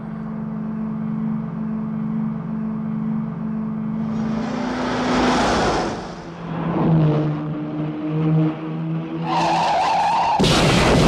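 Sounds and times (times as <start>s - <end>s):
car engine droning: 0.0s - 11.0s
high sustained squeal: 3.9s - 6.6s.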